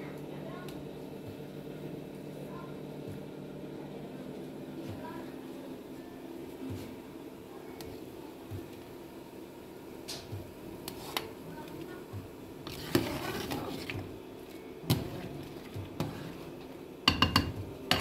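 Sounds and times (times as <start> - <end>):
ladle scraping stir: 12.6 - 14.1, 14.9 - 16.7.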